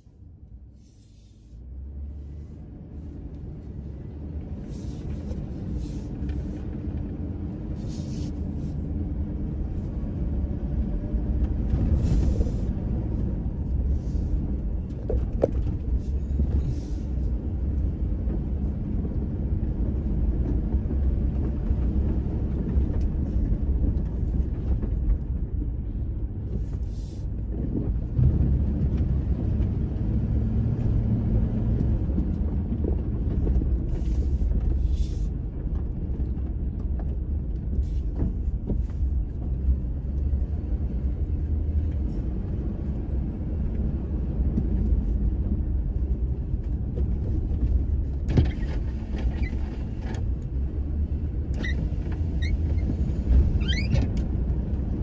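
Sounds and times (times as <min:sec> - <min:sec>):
vehicle driving on dirt track: 0:00.0 - 0:55.0
car body rattling over bumps: 0:14.5 - 0:16.9, 0:45.5 - 0:55.0.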